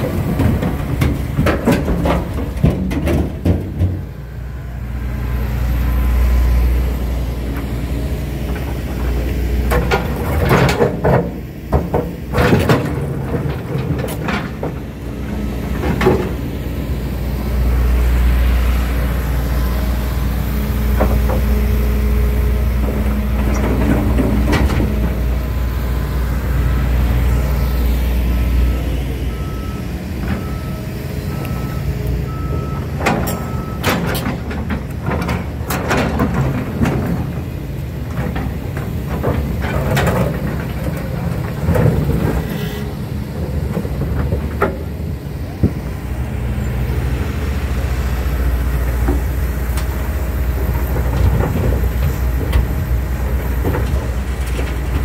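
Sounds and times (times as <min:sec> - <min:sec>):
excavator diesel engine running: 0:00.0 - 0:55.0
backup alarm beeping: 0:28.7 - 0:33.9.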